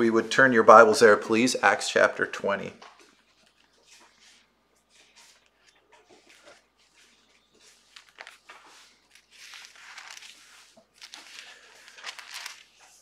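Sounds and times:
paper pages swishing and crinkling: 0:03.0 - 0:13.0.

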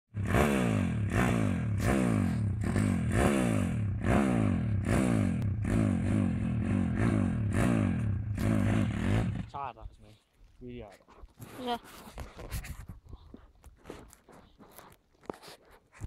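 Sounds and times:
pit bike engine revving: 0:00.1 - 0:09.6.

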